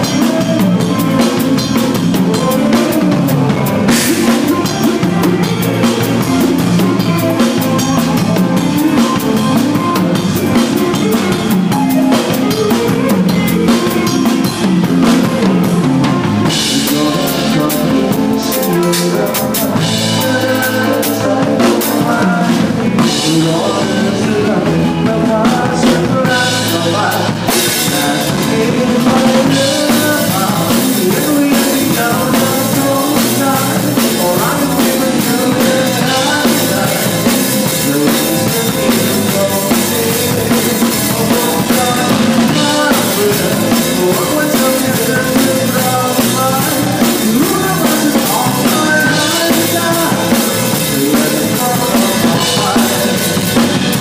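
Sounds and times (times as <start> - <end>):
live band playing: 0.0 - 54.0.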